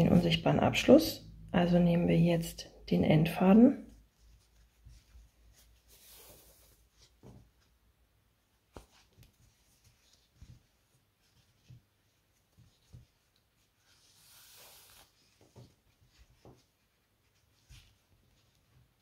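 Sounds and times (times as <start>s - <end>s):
soft handling knocks: 7.0s - 7.7s
cord hissing through stitches: 13.9s - 15.3s.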